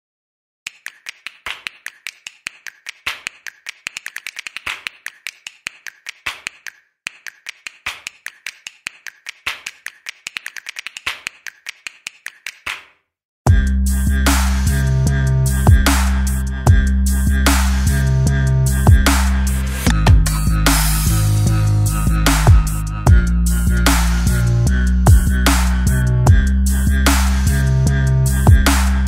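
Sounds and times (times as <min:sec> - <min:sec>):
sharp dry clicks: 0:00.7 - 0:12.9
loud electronic music: 0:13.5 - 0:29.0.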